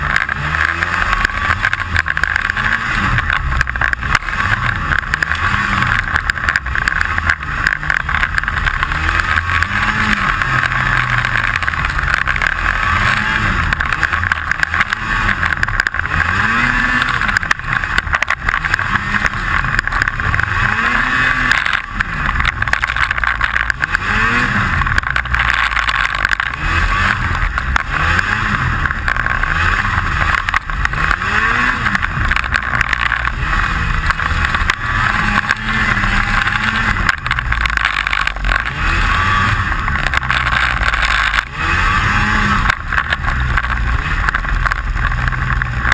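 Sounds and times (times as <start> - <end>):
snowmobile engine revving: 0.0 - 45.9
steady rattle: 0.0 - 45.9.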